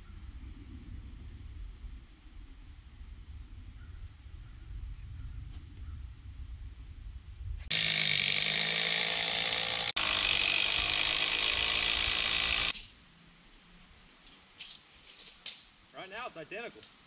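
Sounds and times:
power tool running: 0:07.7 - 0:12.8.

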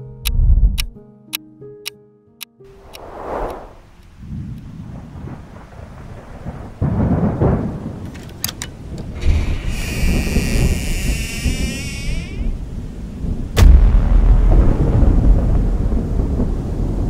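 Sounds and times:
short whoosh: 0:02.8 - 0:04.0
thunder rumbling: 0:02.8 - 0:08.2, 0:08.8 - 0:17.0
rain: 0:02.8 - 0:17.0
high wavering hiss: 0:09.2 - 0:12.8.

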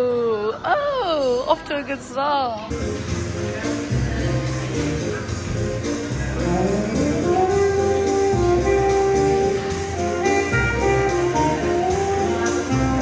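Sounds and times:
bass accompaniment: 0:02.7 - 0:13.0
saxophone slow melody: 0:06.3 - 0:13.0.

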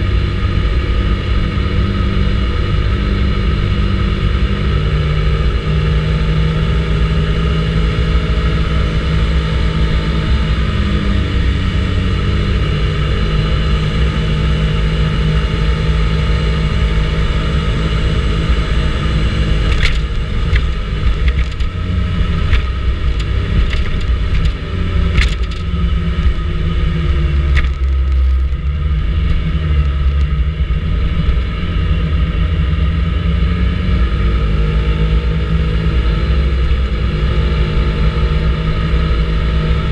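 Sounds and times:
scooter engine running: 0:00.0 - 0:39.9
sharp clicks: 0:22.5 - 0:25.7.

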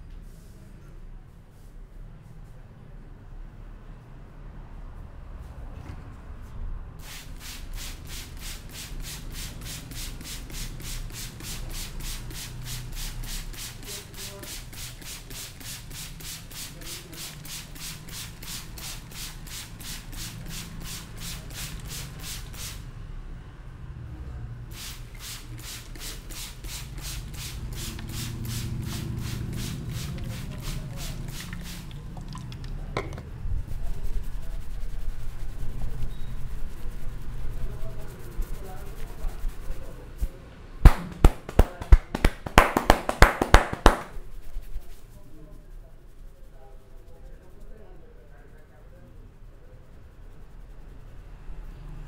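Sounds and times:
hands rubbing hair rasping: 0:08.2 - 0:22.8, 0:25.2 - 0:32.4, 0:33.7 - 0:40.0, 0:40.8 - 0:45.3.

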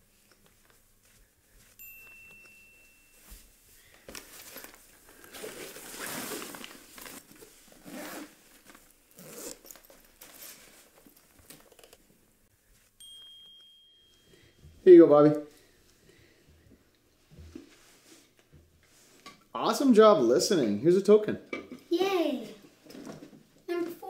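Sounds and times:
fabric rustling: 0:00.0 - 0:11.7
zipper pulled: 0:05.4 - 0:10.8.

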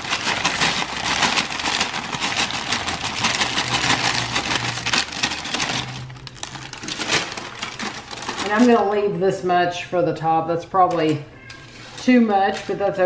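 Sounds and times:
hard crumbs clicking and rattling: 0:00.0 - 0:08.9
paper crinkling: 0:00.0 - 0:09.0, 0:11.4 - 0:13.0.

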